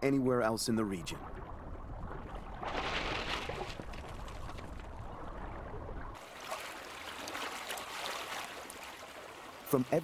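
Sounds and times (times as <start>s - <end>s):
river water running and splashing: 2.0s - 10.0s.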